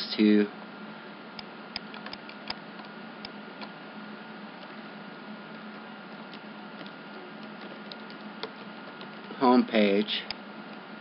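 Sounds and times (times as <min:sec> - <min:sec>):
faint hum and hiss: 0:00.0 - 0:11.0
computer mouse clicking: 0:01.4 - 0:03.8, 0:05.5 - 0:09.2.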